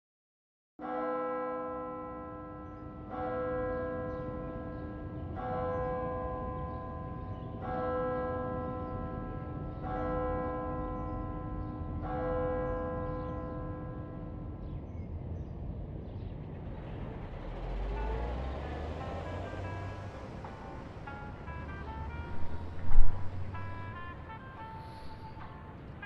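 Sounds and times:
low rumble: 15.2s - 24.1s.

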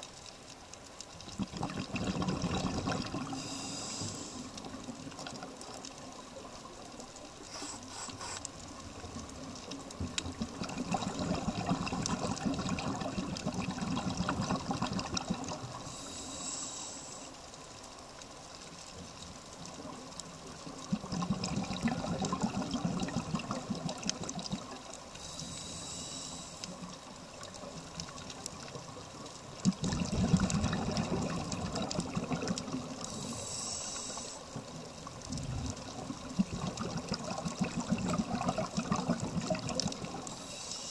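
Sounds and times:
exhaled air bubbling: 1.2s - 16.4s, 19.7s - 26.2s, 26.8s - 40.9s
regulator inhale hiss: 3.3s - 4.7s, 7.4s - 8.7s, 15.8s - 17.5s, 25.1s - 27.0s, 33.0s - 34.6s, 40.3s - 40.9s.

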